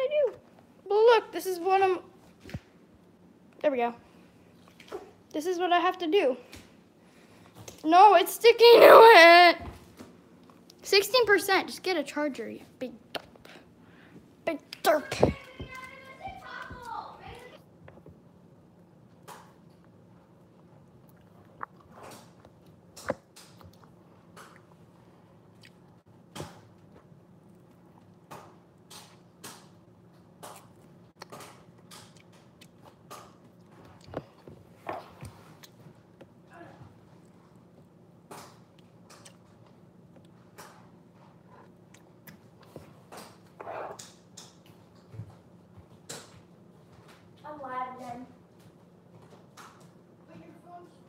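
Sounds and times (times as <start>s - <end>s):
faint steady hum: 0.0s - 51.0s
rustling noises: 13.4s - 17.6s
chewing gummy candy: 19.8s - 24.8s, 30.4s - 36.2s, 38.5s - 40.4s.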